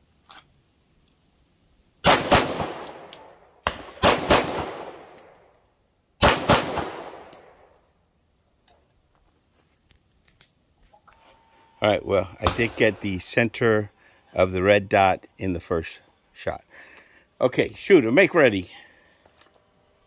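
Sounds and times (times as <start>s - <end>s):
pistol shots: 2.0s - 5.2s, 6.2s - 7.5s.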